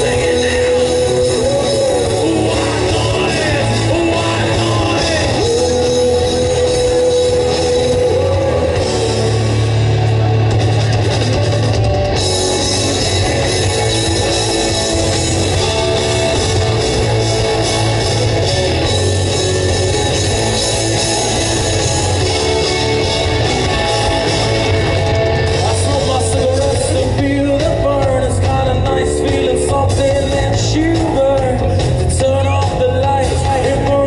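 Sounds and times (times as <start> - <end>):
person singing: 0.0 - 10.0, 25.5 - 34.0
bass guitar: 0.0 - 34.0
drum kit: 0.0 - 34.0
electric guitars: 0.0 - 34.0.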